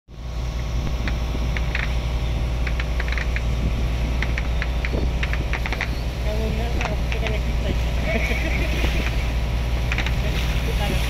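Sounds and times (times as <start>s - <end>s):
boat engine humming: 0.1s - 11.0s
light clicks and rattles: 2.6s - 3.5s, 4.2s - 6.0s, 6.6s - 7.4s, 9.9s - 10.3s.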